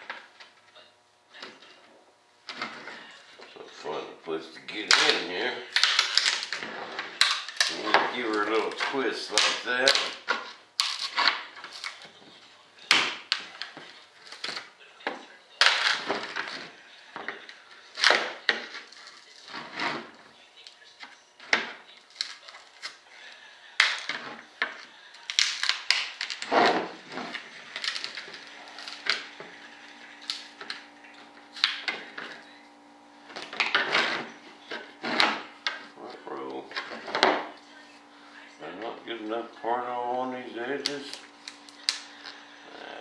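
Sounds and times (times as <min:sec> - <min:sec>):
tool scraping clay: 0:04.7 - 0:12.3, 0:15.6 - 0:20.3, 0:23.8 - 0:32.5, 0:33.3 - 0:37.5.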